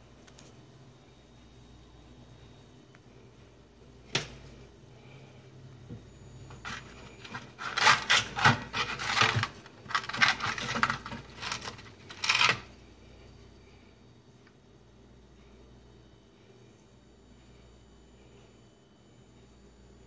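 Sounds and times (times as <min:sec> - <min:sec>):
aluminium foil crinkling: 0:06.6 - 0:12.8.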